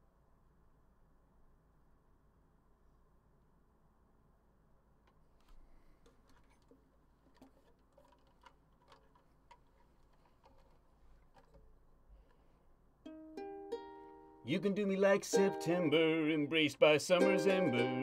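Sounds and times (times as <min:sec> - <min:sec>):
ukulele handling clicks and taps: 0:05.1 - 0:12.4.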